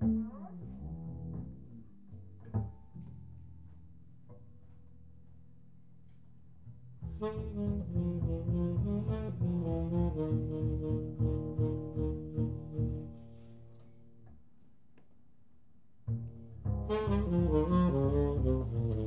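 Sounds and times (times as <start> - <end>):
double bass notes: 0.0 - 14.5, 16.0 - 19.0
tenor saxophone: 7.0 - 14.2, 16.7 - 19.0.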